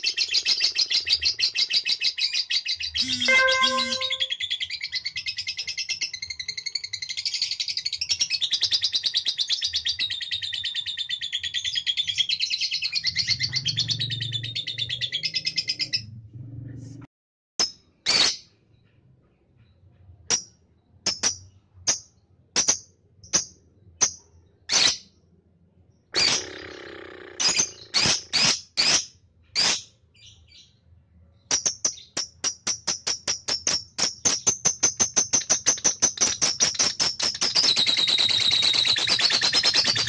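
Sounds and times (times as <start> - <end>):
bird chirping and trilling: 0.0 - 6.1, 7.2 - 16.1, 27.4 - 29.0.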